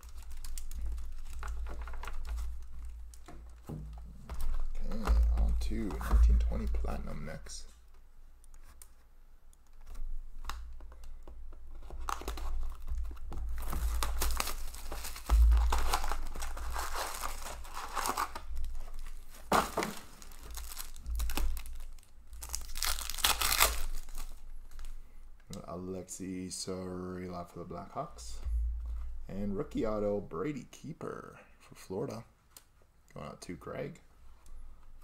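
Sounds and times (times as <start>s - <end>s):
card wrappers tearing and crinkling: 0.0s - 3.3s, 11.7s - 24.9s.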